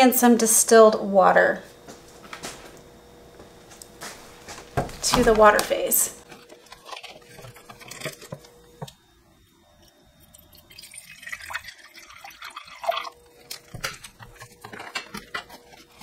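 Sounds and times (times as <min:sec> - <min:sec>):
water trickling into a beaker: 0:10.2 - 0:13.6.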